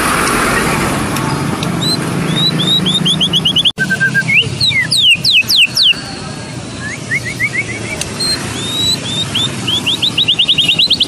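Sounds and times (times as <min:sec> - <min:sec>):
bird singing whistles: 0:01.8 - 0:06.0, 0:06.7 - 0:11.0.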